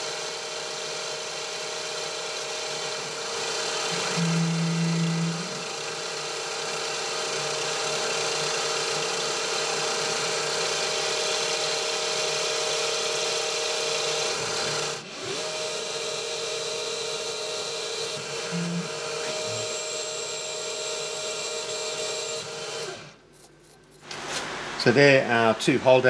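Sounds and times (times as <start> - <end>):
milling machine spindle whine: 0.8 - 23.2
drill bit cutting metal hiss: 3.6 - 8.0.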